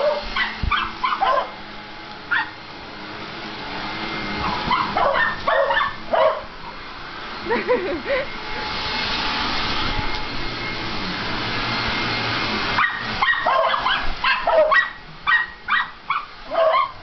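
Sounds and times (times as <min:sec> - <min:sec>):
dogs barking: 0:00.0 - 0:01.6, 0:02.3 - 0:02.6, 0:04.4 - 0:06.5, 0:12.8 - 0:17.0
vacuum cleaner running: 0:00.0 - 0:17.0.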